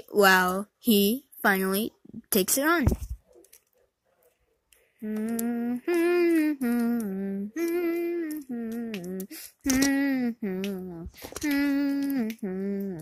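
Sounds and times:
person humming a slow tune: 5.0s - 13.0s.

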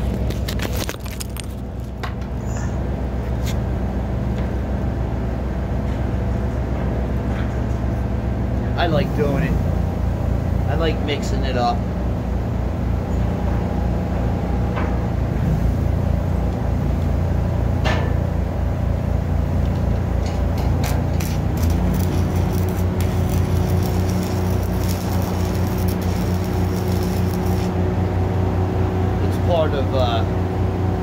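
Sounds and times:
engine droning: 0.0s - 31.0s
arc welding crackle: 20.6s - 27.9s.

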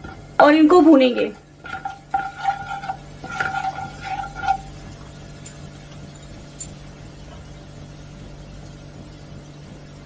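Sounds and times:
oil sizzling: 0.0s - 10.0s
plastic spoon scraping a pan: 1.2s - 4.8s.

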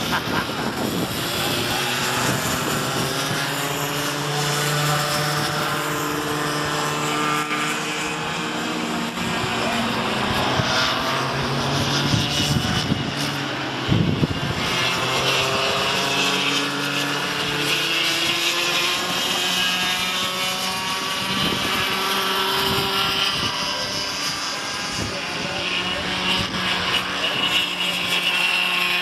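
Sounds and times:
go-kart engines buzzing: 0.0s - 29.0s.

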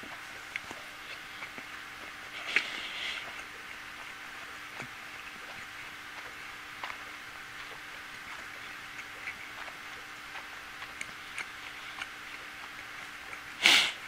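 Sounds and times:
person chewing food: 0.0s - 14.0s
wet mouth clicks: 0.1s - 14.0s
breathy hiss of air: 2.3s - 3.3s, 13.6s - 14.0s.

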